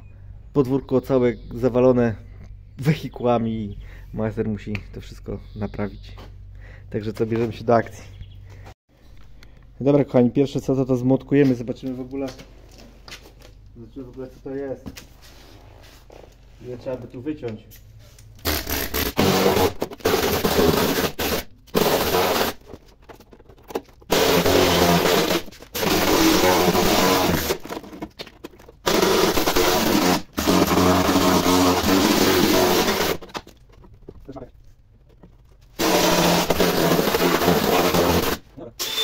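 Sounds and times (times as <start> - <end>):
power tool on steel: 18.4 - 22.6, 24.1 - 27.6, 28.9 - 33.2, 35.8 - 39.0.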